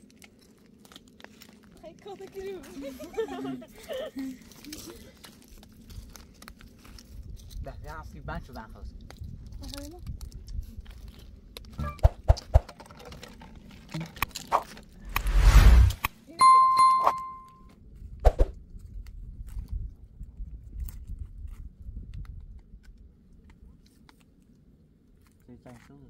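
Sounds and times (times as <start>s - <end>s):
branches rustling: 0.0s - 7.6s
whoosh: 15.1s - 16.1s
bell ding: 16.4s - 17.6s.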